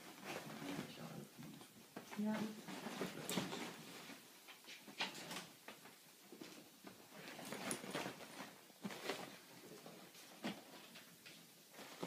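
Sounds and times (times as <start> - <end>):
small paws scuffling: 0.0 - 12.0
duvet rustling: 5.5 - 12.0.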